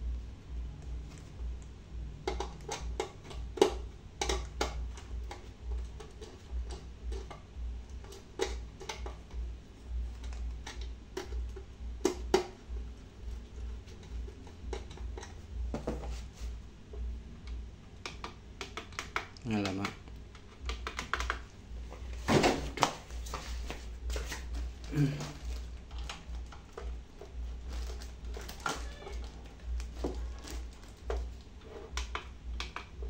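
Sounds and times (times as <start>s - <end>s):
steady low hum: 0.0s - 33.0s
clicks and taps on wires: 1.6s - 9.4s, 10.1s - 12.6s, 16.9s - 21.6s, 25.5s - 33.0s.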